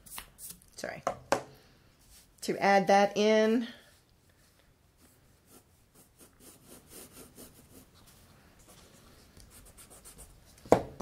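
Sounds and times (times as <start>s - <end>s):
pencil strokes on paper: 4.9s - 10.5s.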